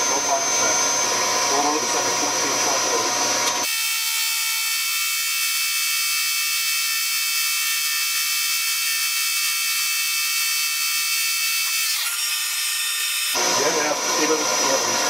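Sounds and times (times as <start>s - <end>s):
injection pump mechanical whine: 0.0s - 4.8s, 9.9s - 15.0s.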